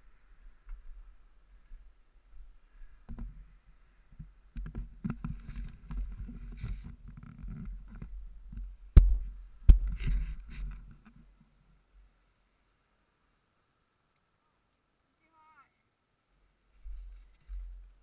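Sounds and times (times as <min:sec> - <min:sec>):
camera handling rumble and knocks: 0:04.5 - 0:11.3
heavy thumps on ground: 0:08.6 - 0:10.8.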